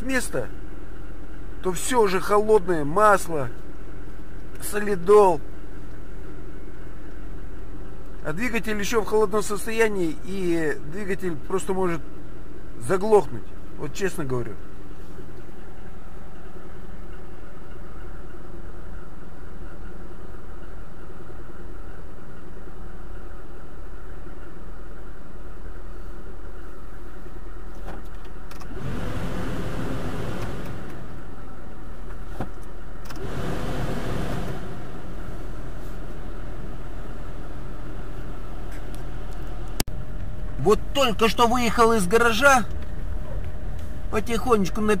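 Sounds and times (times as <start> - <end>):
car engine idling: 0.0 - 45.0
loud rushing noise: 28.7 - 31.3, 33.1 - 36.2.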